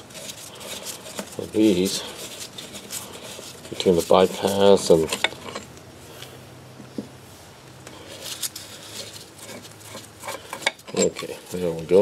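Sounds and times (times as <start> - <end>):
gloved hands rubbing metal: 0.0 - 5.7, 8.0 - 12.0.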